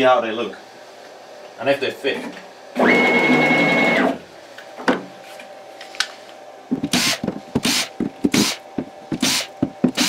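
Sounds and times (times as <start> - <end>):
cordless drill spinning in bursts: 6.9 - 8.6, 9.2 - 10.0.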